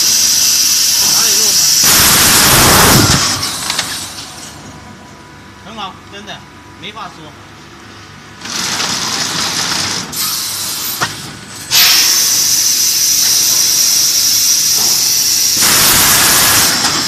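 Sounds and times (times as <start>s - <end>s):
vacuum forming machine air hiss: 0.0s - 4.2s, 10.2s - 17.0s.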